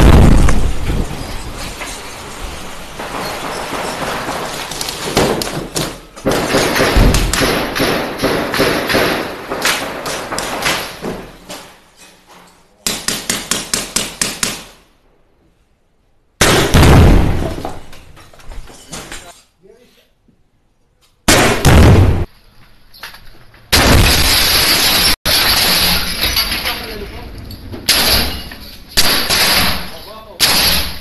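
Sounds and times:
gunshots indoors: 0:03.4 - 0:11.4, 0:16.4 - 0:17.8, 0:21.3 - 0:22.3, 0:27.9 - 0:31.0.

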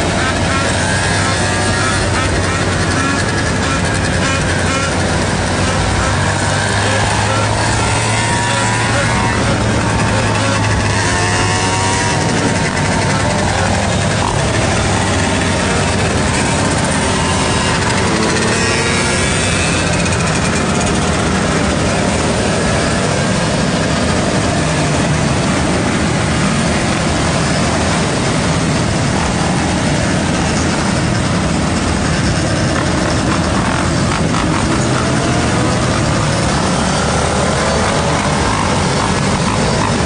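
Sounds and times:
motorcycle engine running: 0:00.0 - 0:40.0.

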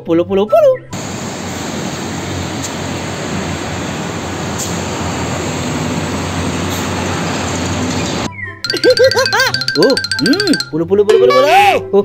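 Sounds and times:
truck diesel engine: 0:01.0 - 0:08.3.

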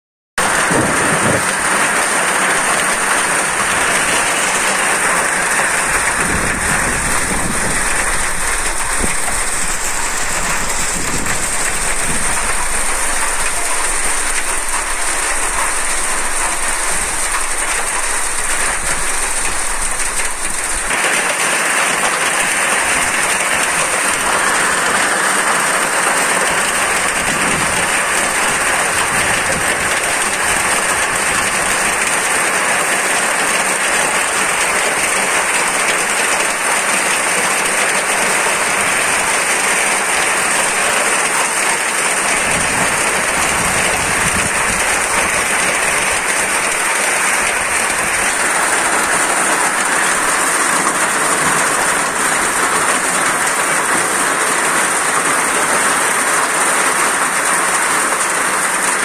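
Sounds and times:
low rumble: 0:00.4 - 0:20.9
heavy rain pouring: 0:00.4 - 0:59.0.

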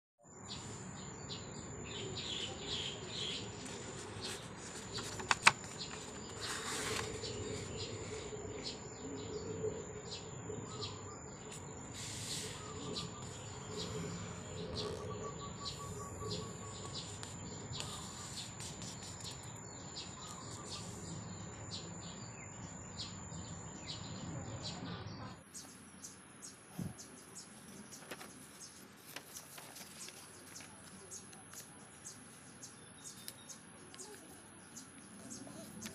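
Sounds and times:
birds chirping: 0:00.3 - 0:35.9
thin steady high tone: 0:00.6 - 0:26.6
paper rustling and folding: 0:03.2 - 0:08.3, 0:27.6 - 0:31.7.

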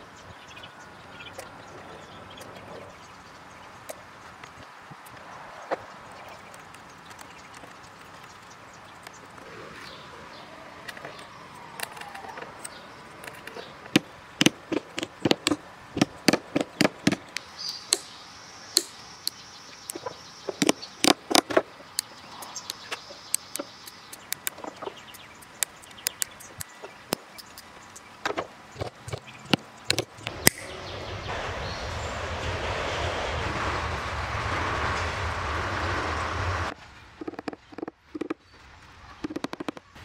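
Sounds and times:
hand cutters snipping cane: 0:28.3 - 0:30.7.

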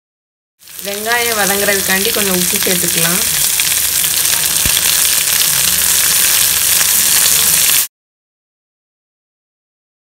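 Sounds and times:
onions sizzling in hot oil: 0:00.6 - 0:07.9.

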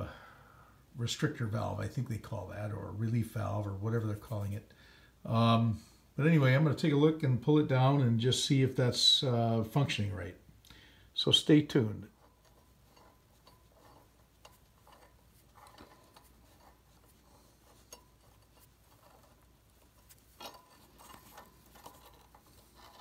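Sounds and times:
soft handling noises: 0:01.0 - 0:23.0
rustle: 0:12.0 - 0:23.0.

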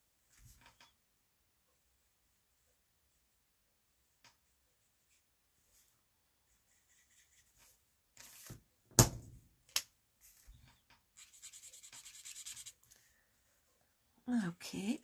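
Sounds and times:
marker scratching on cardstock: 0:06.7 - 0:07.6, 0:11.2 - 0:12.8.

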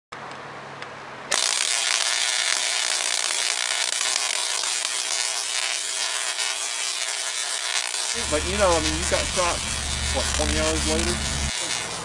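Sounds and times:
tesla coil crackling buzz: 0:01.3 - 0:12.0.

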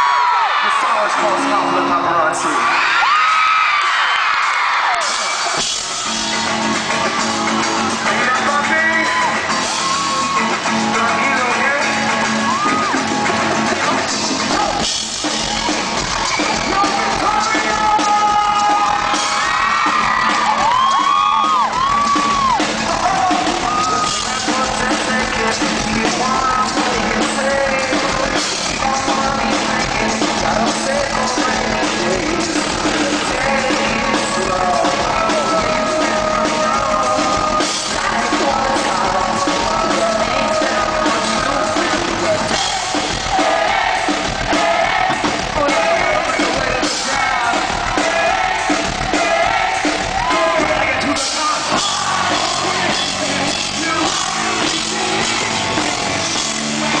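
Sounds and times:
live pop-rock band: 0:00.0 - 0:57.0
man singing: 0:07.8 - 0:13.0, 0:16.4 - 0:19.6, 0:20.5 - 0:43.8, 0:44.5 - 0:57.0.

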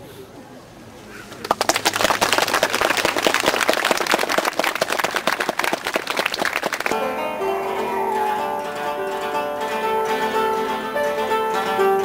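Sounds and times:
audience applauding: 0:01.3 - 0:07.2
plucked koto notes: 0:06.9 - 0:12.0.

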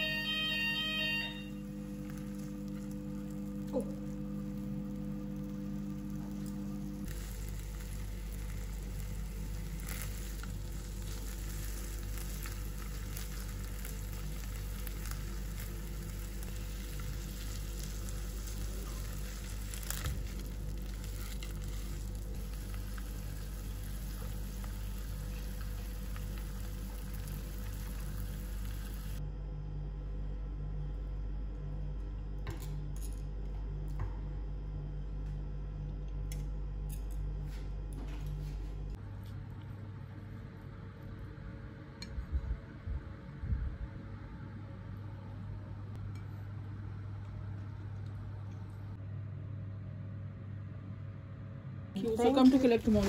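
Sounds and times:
fish sizzling in frying pan: 0:04.6 - 0:29.2.

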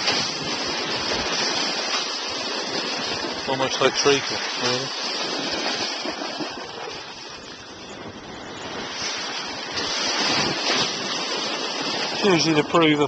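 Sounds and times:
slurry pouring and splashing: 0:00.0 - 0:07.5.

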